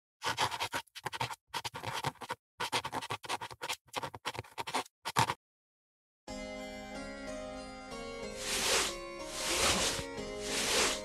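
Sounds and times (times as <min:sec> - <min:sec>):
pen scratching on paper: 0:00.2 - 0:05.4, 0:08.4 - 0:11.0.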